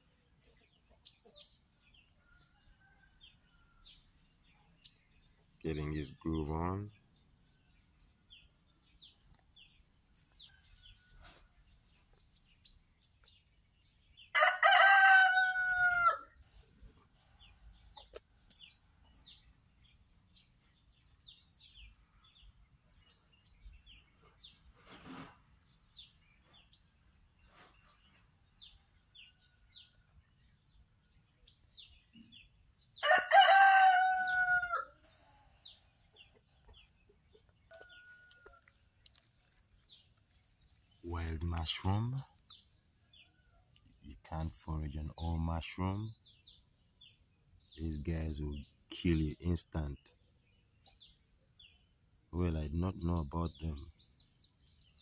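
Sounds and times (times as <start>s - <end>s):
small birds chirping: 0.0s - 55.0s
rooster crowing: 14.3s - 16.4s, 33.0s - 35.8s.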